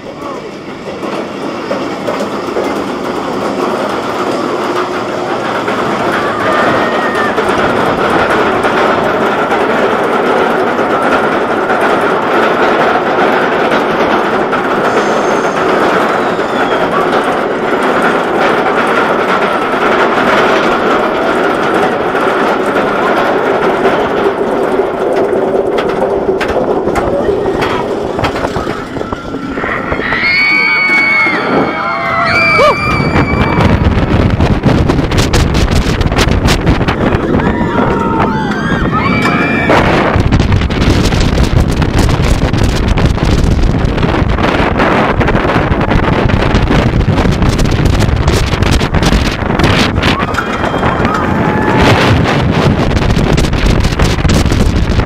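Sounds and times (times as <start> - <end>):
roller coaster wheels rumbling on rail: 0.0 - 55.0
wind buffeting microphone: 0.0 - 55.0
riders screaming: 5.9 - 7.6, 14.8 - 17.2, 28.5 - 34.0, 36.9 - 40.0, 50.0 - 52.1.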